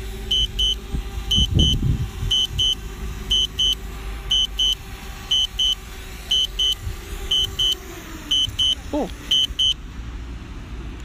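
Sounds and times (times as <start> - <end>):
high double beep: 0.3 - 9.8.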